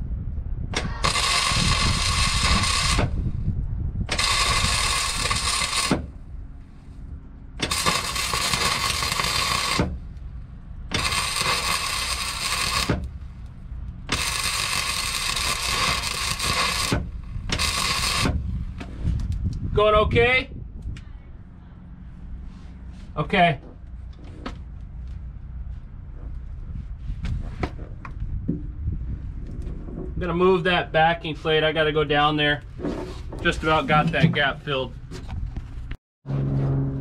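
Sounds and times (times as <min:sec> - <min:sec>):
welding arc crackling and sizzling: 0:00.8 - 0:03.2, 0:04.0 - 0:06.2, 0:07.6 - 0:19.5.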